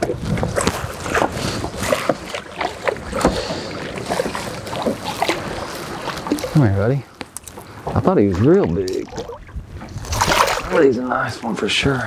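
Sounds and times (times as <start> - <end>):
fish splashing in water: 0.0 - 6.6, 8.3 - 10.9.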